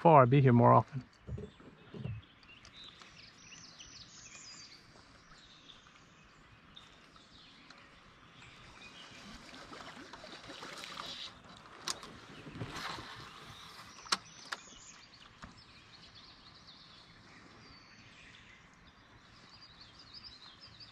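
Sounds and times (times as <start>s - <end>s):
small bird chirps: 1.1s - 9.3s
water wash: 8.8s - 13.4s.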